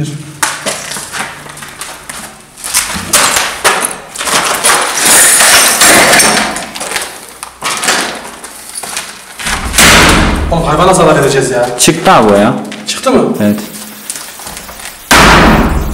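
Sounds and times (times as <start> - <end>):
knocks and crunching: 0.4 - 10.6, 14.3 - 15.9.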